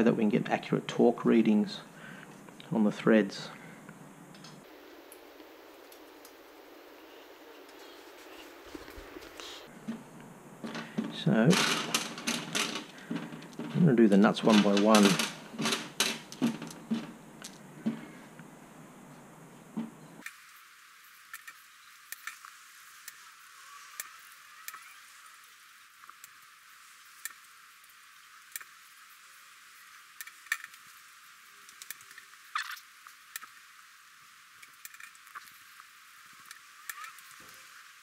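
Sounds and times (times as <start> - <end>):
faint hiss: 0.0 - 38.0
metal nuts clinking: 11.5 - 17.6.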